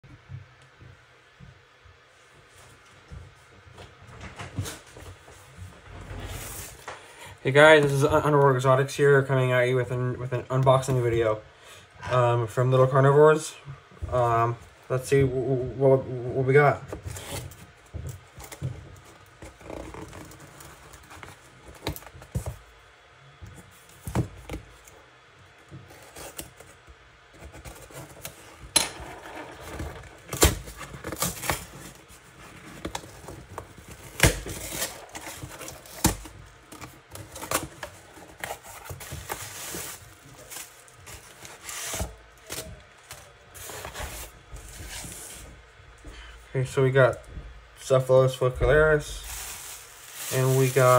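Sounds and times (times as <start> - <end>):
plastic rustling: 25.7 - 45.6, 48.3 - 50.9
packing paper crumpling: 49.1 - 50.9.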